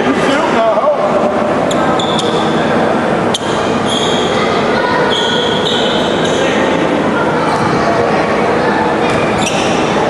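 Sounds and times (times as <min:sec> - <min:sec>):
sneakers squeaking on court: 0:01.7 - 0:02.6, 0:03.3 - 0:04.4, 0:09.1 - 0:10.0.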